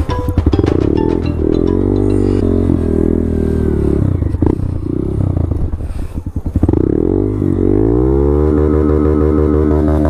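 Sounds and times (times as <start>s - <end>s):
rapid rattling: 0.0s - 2.8s
motorcycle engine revving: 0.5s - 10.0s.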